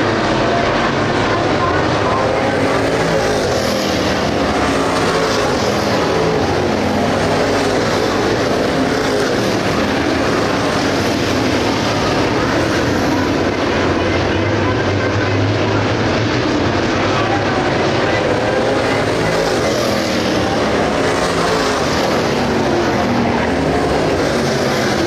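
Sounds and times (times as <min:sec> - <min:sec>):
race car engines droning: 0:00.0 - 0:25.0.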